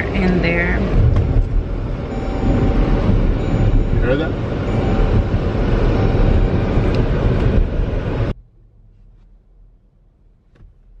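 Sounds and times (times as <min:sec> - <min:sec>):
loud low rumbling: 0:00.0 - 0:08.4.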